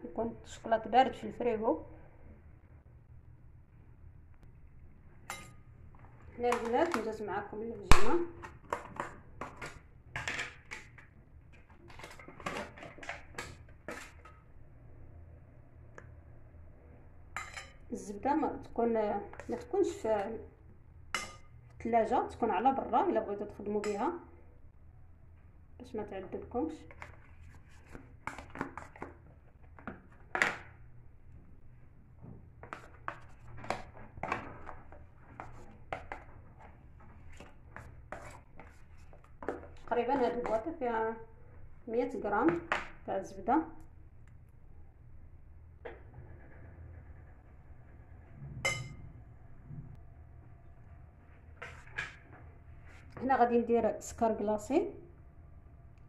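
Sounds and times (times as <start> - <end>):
spoon scraping butter container: 37.2 - 40.7.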